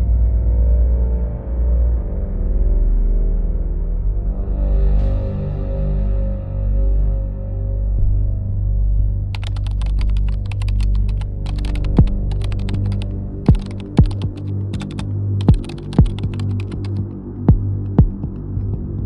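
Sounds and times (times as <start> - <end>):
keyboard typing clicks: 9.4 - 18.6
deep double thumps: 15.5 - 19.0.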